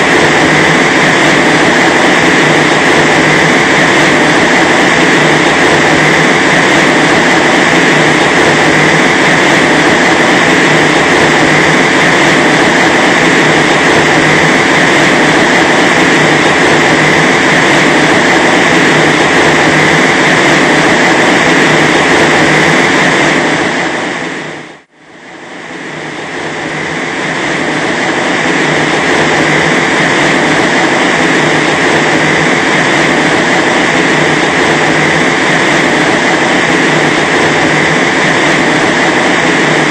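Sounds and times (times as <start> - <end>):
wind machine blowing air: 0.0 - 39.9.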